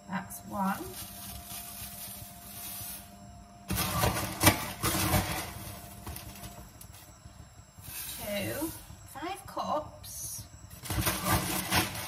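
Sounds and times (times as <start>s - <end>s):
plastic liner and cereal rustling: 0.6s - 3.1s, 3.7s - 6.6s, 10.8s - 12.0s.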